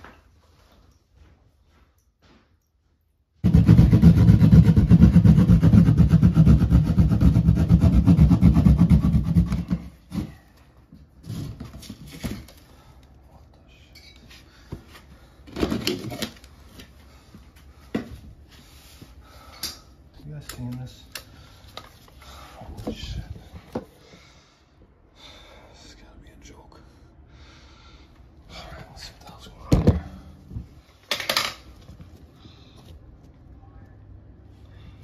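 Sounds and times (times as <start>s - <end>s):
reciprocating saw cutting drywall: 3.4s - 9.8s.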